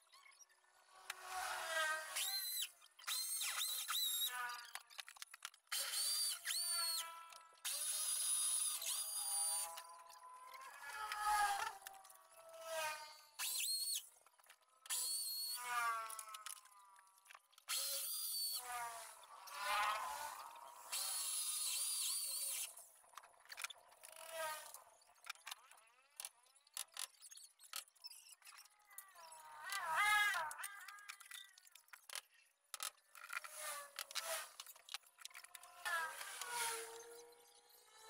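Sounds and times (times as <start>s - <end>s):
electric drill drilling into wall: 1.1s - 4.8s, 5.7s - 14.1s, 14.8s - 16.8s, 17.7s - 22.9s, 33.4s - 37.2s.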